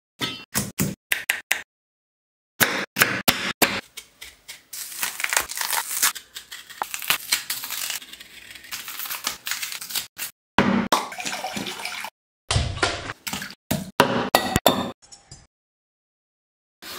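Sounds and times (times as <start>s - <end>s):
banana skin tearing: 4.8s - 10.4s.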